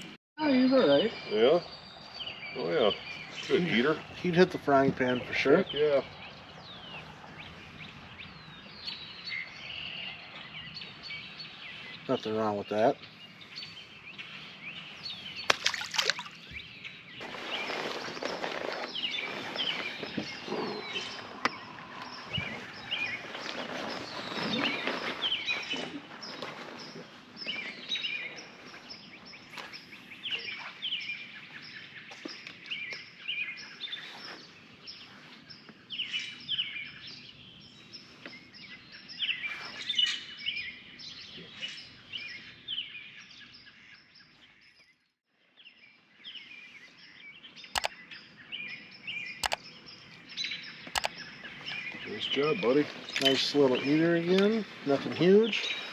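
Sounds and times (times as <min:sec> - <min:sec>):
songbirds singing and chirping: 0:00.0 - 0:55.9
faint outdoor hum: 0:00.4 - 0:44.4
sharp clicks: 0:49.4 - 0:49.6, 0:50.9 - 0:51.2.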